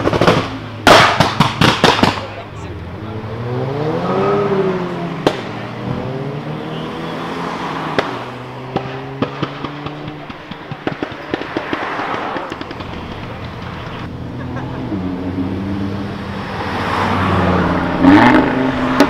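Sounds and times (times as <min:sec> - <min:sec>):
exhaust pops and bangs: 0:00.0 - 0:02.4, 0:05.2 - 0:06.0, 0:07.9 - 0:14.1
car engine revving: 0:00.0 - 0:19.0.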